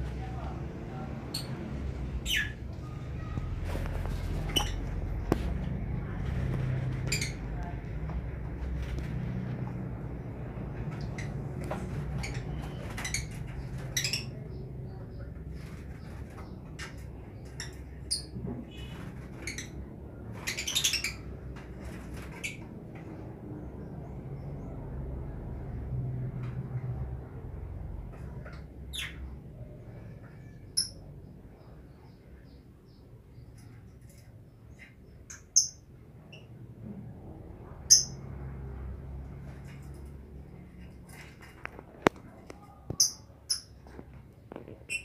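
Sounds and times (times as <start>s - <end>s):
birds squawking and chirping: 1.2s - 5.5s, 6.3s - 7.6s, 10.8s - 23.2s
lovebirds chirping: 1.3s - 3.4s, 4.1s - 5.5s, 12.2s - 21.4s, 28.4s - 36.5s, 37.8s - 38.2s, 40.5s - 45.0s.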